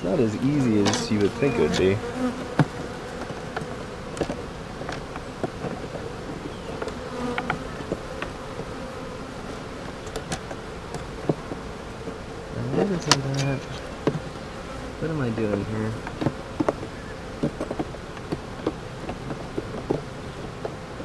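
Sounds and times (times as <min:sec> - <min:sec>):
honey bees buzzing: 0:00.0 - 0:21.0
hive tool clicks and knocks: 0:00.8 - 0:06.0, 0:06.8 - 0:08.7, 0:12.9 - 0:14.3.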